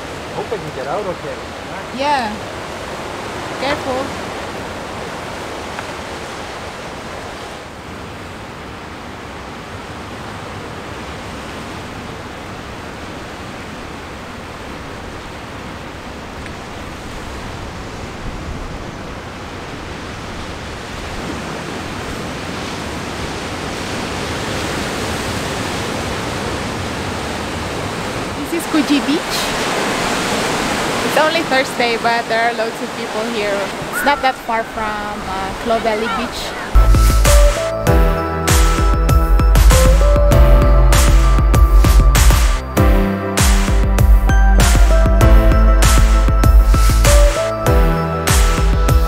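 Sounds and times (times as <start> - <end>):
sea waves breaking on rocks: 0.0 - 36.8.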